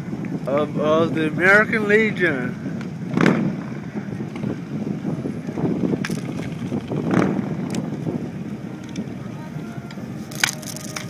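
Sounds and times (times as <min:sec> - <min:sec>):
truck engine and tyres rumbling: 0:00.0 - 0:11.0
wind buffeting microphone: 0:00.0 - 0:11.0.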